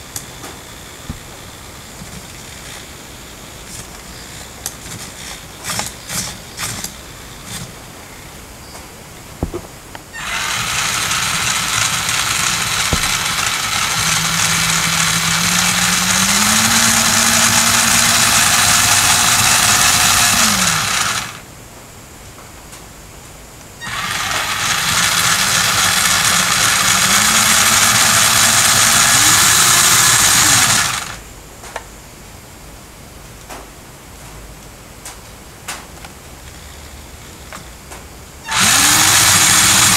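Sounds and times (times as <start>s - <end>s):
toy truck electric motor whine: 3.7s - 7.8s, 10.1s - 21.4s, 23.8s - 31.2s, 38.4s - 39.9s.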